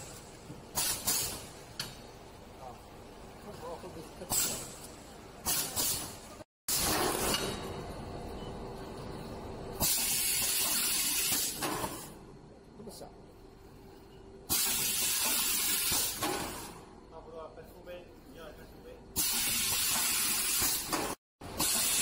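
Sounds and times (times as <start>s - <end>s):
compressed air hiss: 0.7s - 1.5s, 9.8s - 12.0s, 14.5s - 16.7s, 19.2s - 21.0s, 21.6s - 22.0s.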